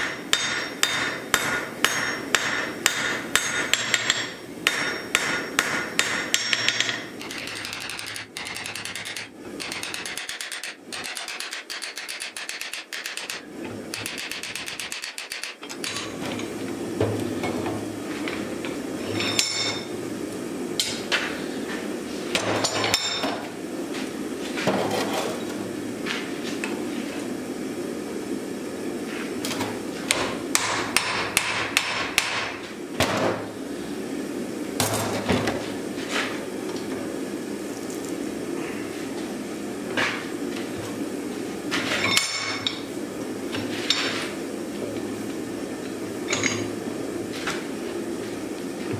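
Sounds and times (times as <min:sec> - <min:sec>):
hammer striking hot steel: 0:00.0 - 0:16.2, 0:30.1 - 0:32.6.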